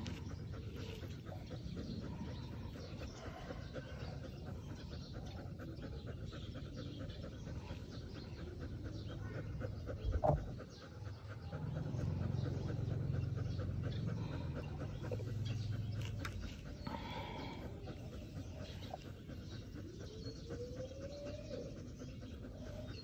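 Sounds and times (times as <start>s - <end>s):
dog panting: 0.0s - 23.0s.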